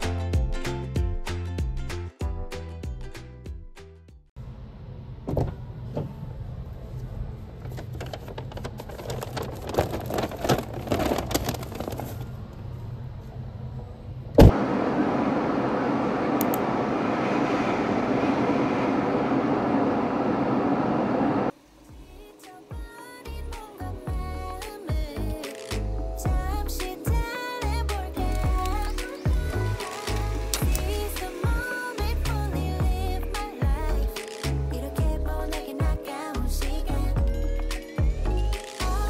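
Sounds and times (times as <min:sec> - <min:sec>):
car interior road noise: 0:04.4 - 0:21.6
paper bag crinkling: 0:08.6 - 0:12.3
loud thump: 0:14.4 - 0:14.6.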